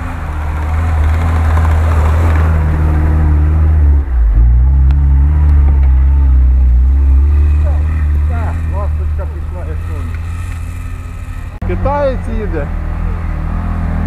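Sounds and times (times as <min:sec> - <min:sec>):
car engine running under load: 0:00.0 - 0:14.0.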